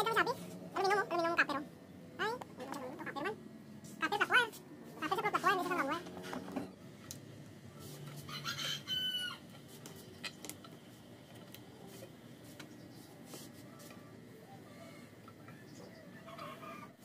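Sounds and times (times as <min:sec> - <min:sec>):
rooster crowing: 0:08.2 - 0:09.5, 0:16.1 - 0:17.0.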